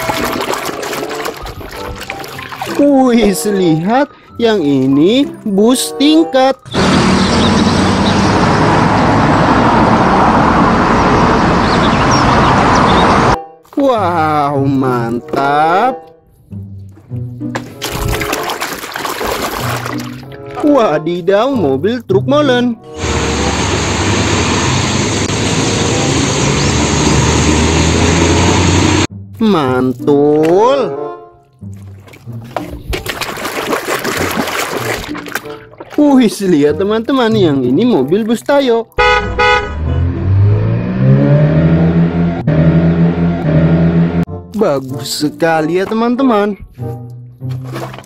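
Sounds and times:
bus engine hum: 0:06.6 - 0:13.4, 0:22.8 - 0:29.1, 0:39.0 - 0:44.3
road and traffic noise: 0:06.6 - 0:13.7, 0:22.8 - 0:29.1, 0:38.8 - 0:44.3
tyres hissing on wet road: 0:22.9 - 0:29.1.

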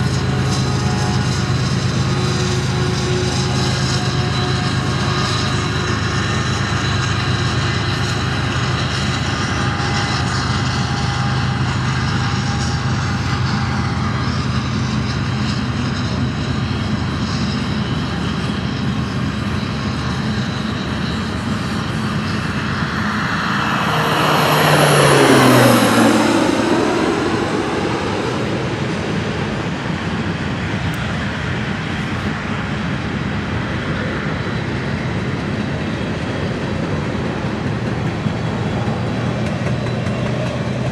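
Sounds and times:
airplane engine and propeller droning: 0:00.0 - 0:40.9.

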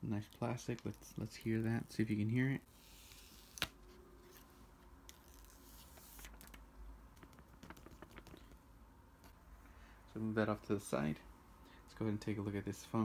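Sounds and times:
plastic film crinkling: 0:05.1 - 0:08.6.

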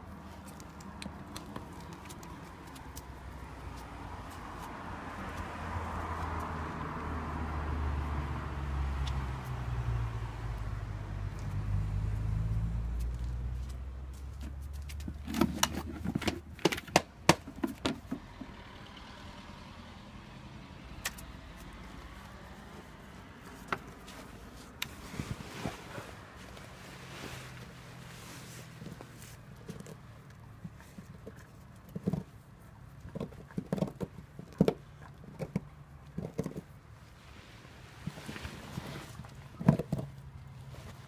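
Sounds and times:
chew toys clicking on paving: 0:00.2 - 0:05.5, 0:20.9 - 0:24.0, 0:28.8 - 0:36.9.

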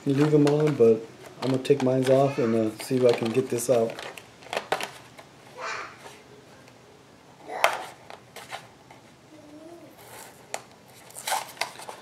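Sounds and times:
plastic packaging crinkling: 0:02.7 - 0:05.2, 0:10.0 - 0:12.0.

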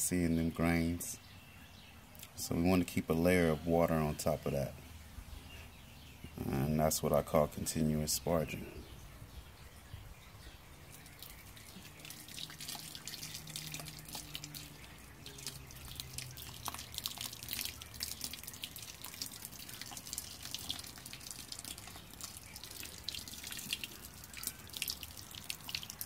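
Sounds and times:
water dripping and splashing: 0:08.1 - 0:26.0.

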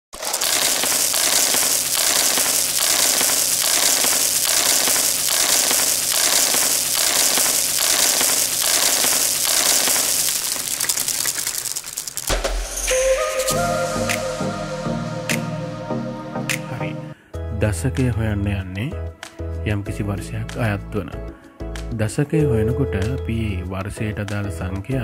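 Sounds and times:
dense loud crackling: 0:00.2 - 0:13.2.

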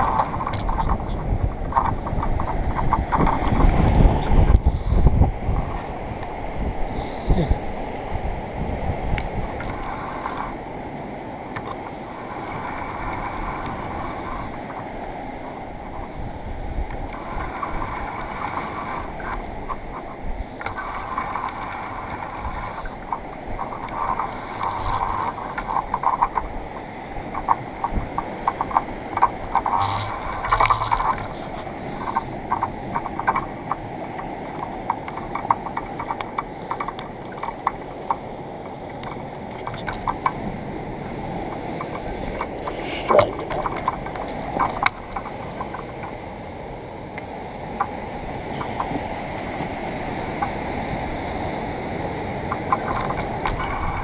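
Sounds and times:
surf washing against rocks: 0:00.0 - 0:54.0
wind on microphone: 0:00.0 - 0:54.0
clicks and rattles: 0:22.8 - 0:26.5, 0:27.3 - 0:33.8, 0:34.6 - 0:40.5, 0:41.5 - 0:46.2, 0:52.4 - 0:54.0.

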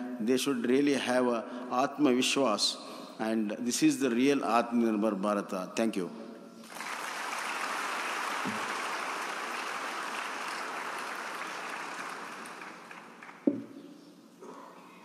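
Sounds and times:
large audience applauding: 0:06.6 - 0:13.5.

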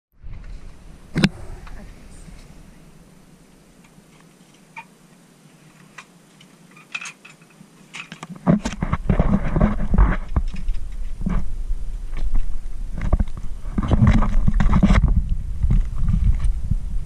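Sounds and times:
wind buffeting microphone: 0:00.2 - 0:04.3, 0:13.0 - 0:17.0.

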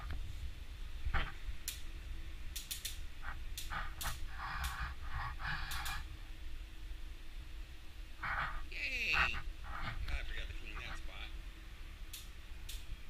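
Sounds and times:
rough hissy sounds: 0:00.0 - 0:13.0
fox claws clicking on tile: 0:02.6 - 0:04.9, 0:05.6 - 0:06.0.

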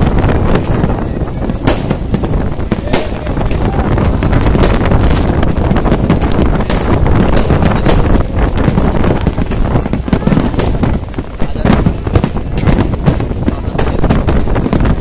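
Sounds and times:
fireworks bangs and cracks: 0:00.0 - 0:15.0
wind buffeting microphone: 0:00.0 - 0:15.0.

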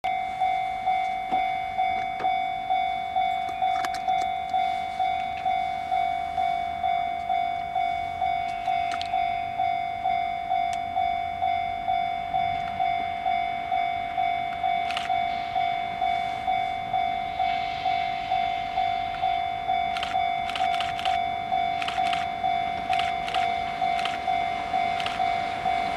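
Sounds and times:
level crossing warning bell: 0:00.0 - 0:25.9.

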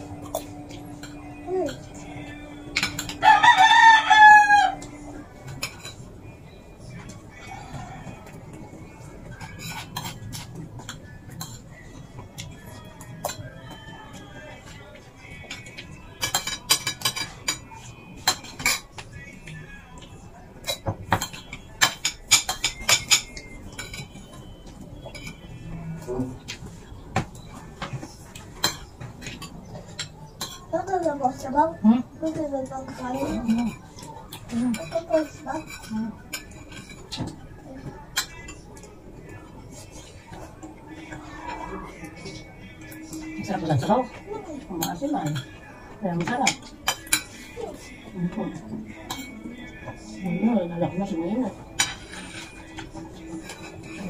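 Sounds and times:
cutlery clicking on plates: 0:00.2 - 0:03.6, 0:04.8 - 0:06.0, 0:09.3 - 0:11.8, 0:12.4 - 0:13.5, 0:14.2 - 0:25.5, 0:26.4 - 0:31.2, 0:32.2 - 0:39.3, 0:44.8 - 0:47.6, 0:48.6 - 0:50.1, 0:51.8 - 0:54.0
rooster crowing: 0:03.1 - 0:05.0.

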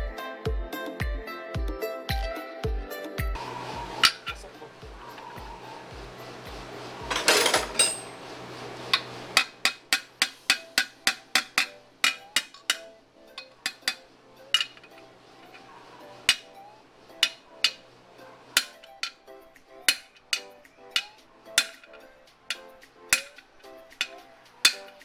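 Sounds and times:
loud metal clatter: 0:07.1 - 0:08.2
hammer tapping metal drift: 0:08.9 - 0:25.0.

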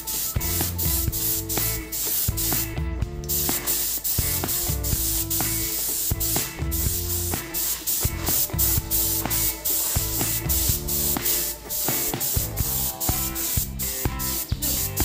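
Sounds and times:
air spray gun hissing: 0:00.0 - 0:02.7, 0:03.3 - 0:15.0
background music: 0:00.0 - 0:15.0.

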